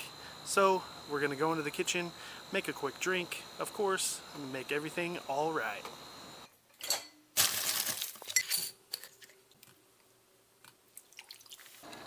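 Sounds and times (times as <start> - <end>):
ice cubes clinking in glass: 6.8 - 9.2.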